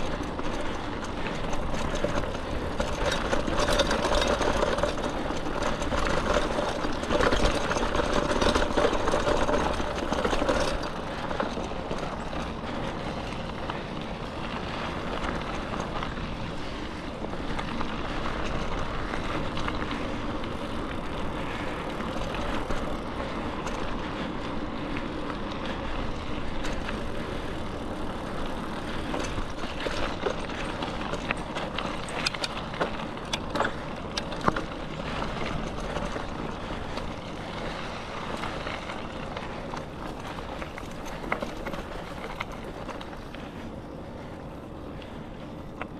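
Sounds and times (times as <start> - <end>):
sharp clicks and rattles: 0.0 - 13.8, 26.4 - 43.5
bicycle tyres on dirt trail: 0.0 - 45.9.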